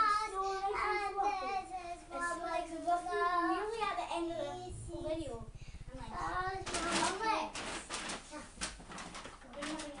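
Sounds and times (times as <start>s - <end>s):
girl singing: 0.0s - 7.6s.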